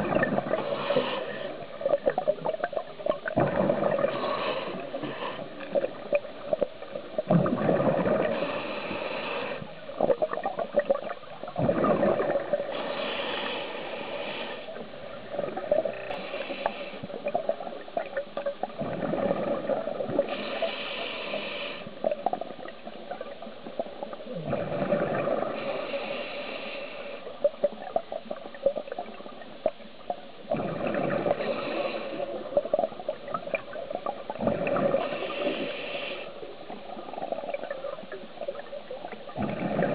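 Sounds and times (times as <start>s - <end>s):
regulator hiss on inhale: 0.4s - 2.2s, 4.0s - 6.2s, 8.2s - 10.0s, 12.6s - 15.0s, 15.9s - 17.7s, 20.2s - 22.2s, 25.4s - 27.6s, 31.2s - 33.3s, 34.6s - 38.1s
bubbles gushing on exhale: 2.0s - 4.2s, 7.2s - 8.4s, 10.0s - 12.7s, 18.7s - 20.3s, 39.3s - 39.9s.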